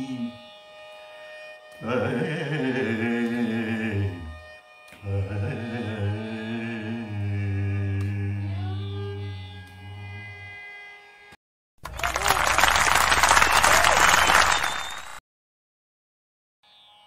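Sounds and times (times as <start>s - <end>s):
man singing: 0.0s - 0.5s, 1.8s - 4.4s, 5.0s - 9.3s
violin accompaniment: 0.0s - 7.2s.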